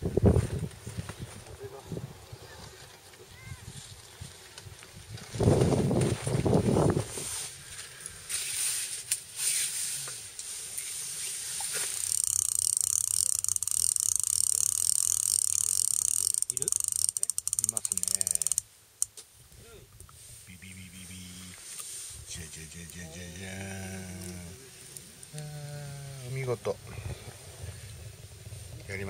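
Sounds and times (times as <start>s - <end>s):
electric fishing reel whirring: 11.9s - 18.6s.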